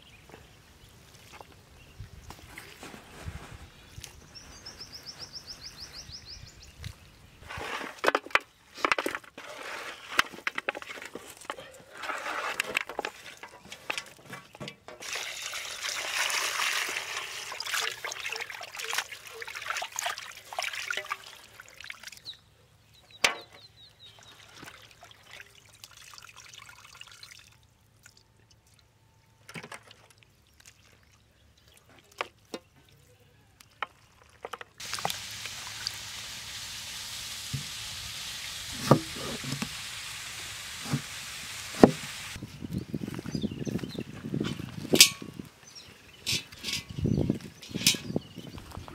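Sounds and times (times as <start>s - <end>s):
steady outdoor hiss: 0.0s - 10.2s, 34.8s - 42.4s
water splashing and trickling: 0.8s - 4.3s, 8.8s - 22.6s, 23.2s - 48.9s.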